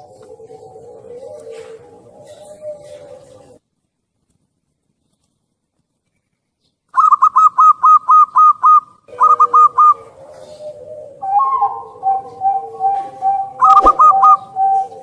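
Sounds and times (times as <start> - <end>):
dove cooing: 0.0 - 3.6, 7.0 - 15.0
lower even bird notes: 7.0 - 15.0.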